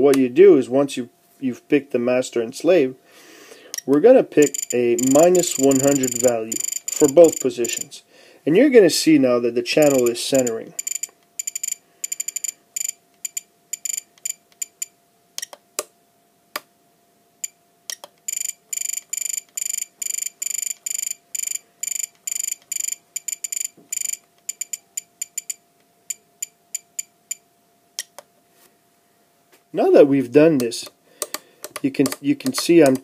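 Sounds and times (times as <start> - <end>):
short high beeps: 4.4 - 7.8, 9.9 - 14.0.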